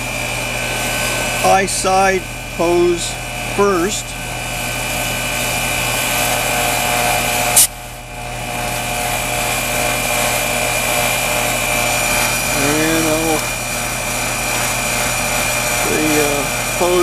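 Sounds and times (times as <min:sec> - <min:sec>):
heat pump compressor and fan hum: 0:00.0 - 0:17.0
short sharp refrigerant hiss: 0:07.5 - 0:07.8.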